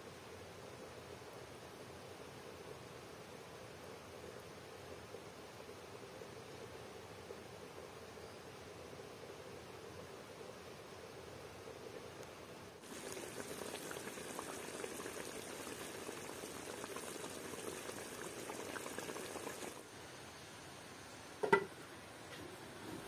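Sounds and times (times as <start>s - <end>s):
stew bubbling and crackling: 12.8s - 19.9s
metal lid clank: 21.4s - 21.7s.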